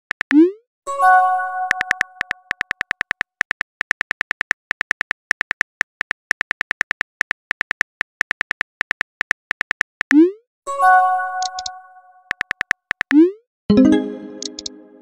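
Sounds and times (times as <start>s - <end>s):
keyboard key clicks: 11.4s - 11.7s, 14.4s - 14.8s.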